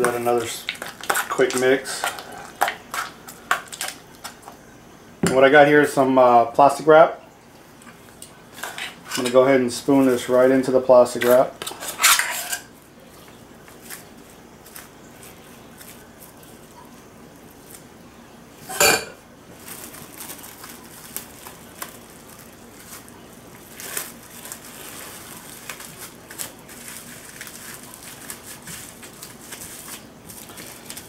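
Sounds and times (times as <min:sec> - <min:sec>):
kitchen utensils clanking: 0:11.6 - 0:12.7, 0:18.7 - 0:19.2
plastic wrap crinkling: 0:12.0 - 0:17.9, 0:19.5 - 0:31.0.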